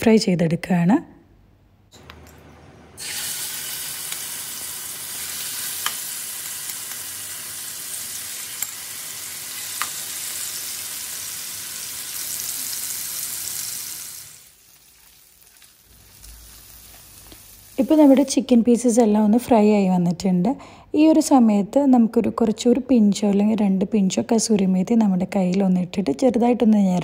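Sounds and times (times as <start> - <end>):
chicken sizzling in oil: 3.0 - 18.3.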